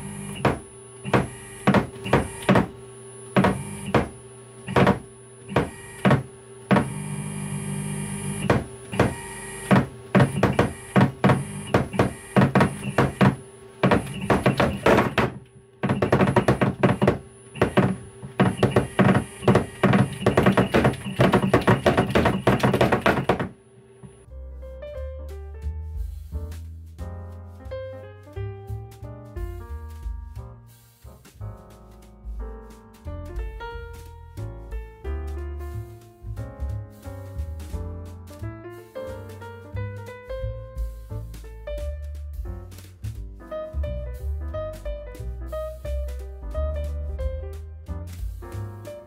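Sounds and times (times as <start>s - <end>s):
servo motor clunking: 0.0s - 2.8s, 3.4s - 23.5s
steady motor hum: 0.0s - 24.3s.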